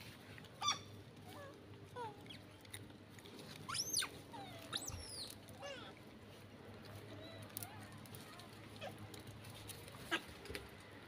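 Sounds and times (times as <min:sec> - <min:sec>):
monkeys squeaking and squealing: 0:03.7 - 0:05.4.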